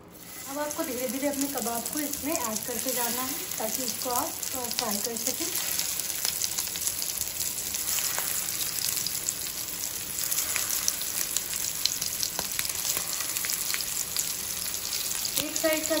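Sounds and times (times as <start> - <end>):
patties sizzling in hot oil: 0.0 - 16.0.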